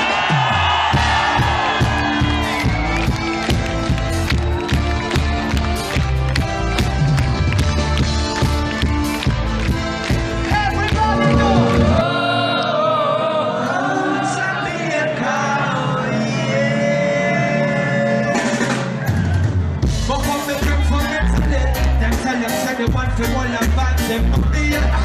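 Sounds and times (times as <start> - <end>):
bass and drums: 0.0 - 12.1, 18.2 - 25.0
live reggae band: 0.0 - 25.0
person singing: 11.0 - 19.0.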